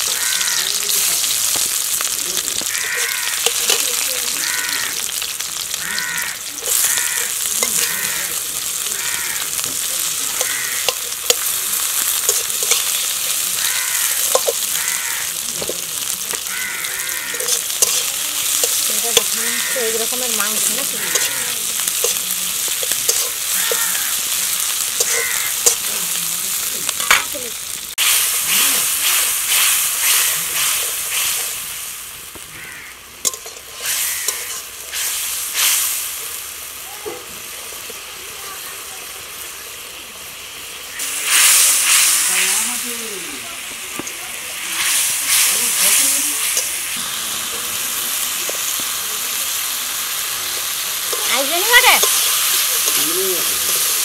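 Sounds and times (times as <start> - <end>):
onions sizzling in oil: 0.0 - 54.0
bird calling: 2.0 - 12.0, 23.3 - 26.0
metal spatula scraping pan: 17.3 - 24.1, 33.2 - 35.2, 51.0 - 54.0.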